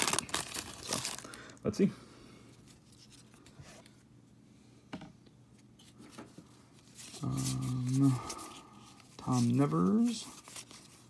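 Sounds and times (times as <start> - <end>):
cards rubbing: 6.8 - 11.0
man humming: 7.2 - 8.3.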